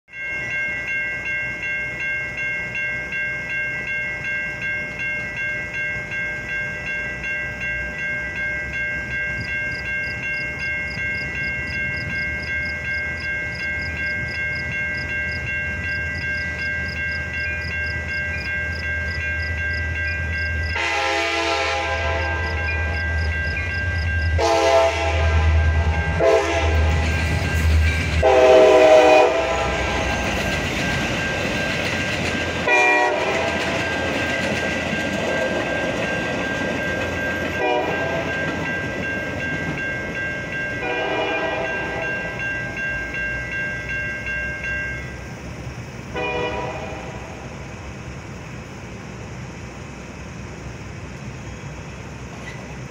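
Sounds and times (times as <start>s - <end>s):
railroad crossing bells ringing: 0.1s - 52.9s
train rumbling: 0.1s - 52.9s
train horn blasts: 20.7s - 23.0s, 24.3s - 27.2s, 28.2s - 30.2s, 32.6s - 33.8s, 37.6s - 38.3s, 40.8s - 42.1s, 46.1s - 47.4s.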